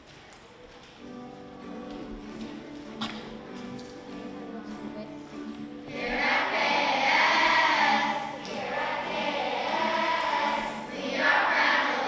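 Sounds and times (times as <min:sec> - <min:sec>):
instrumental backing music: 0:00.8 - 0:12.0
children's choir singing: 0:02.2 - 0:12.0.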